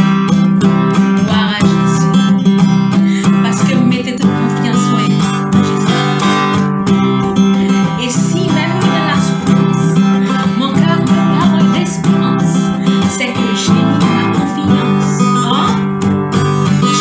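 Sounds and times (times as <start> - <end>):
acoustic guitar strumming: 0.0 - 17.0
woman singing a hymn: 1.2 - 2.2, 3.2 - 6.5, 7.7 - 15.9.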